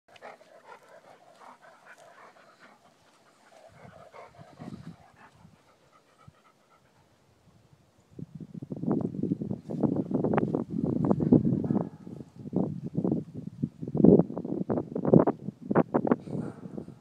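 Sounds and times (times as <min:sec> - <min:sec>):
dogs panting: 0:00.1 - 0:07.2.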